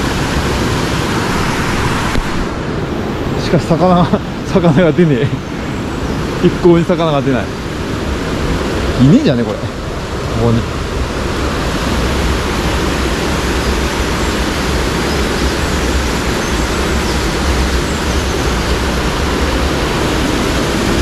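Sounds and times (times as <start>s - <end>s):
stream rushing water: 0.0s - 21.0s.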